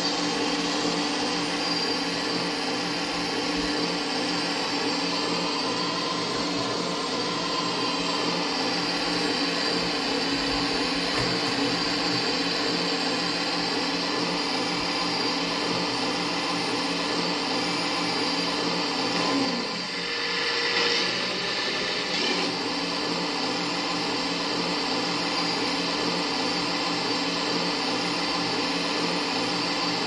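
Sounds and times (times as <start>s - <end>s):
electric motor and pump whine: 0.0s - 30.0s.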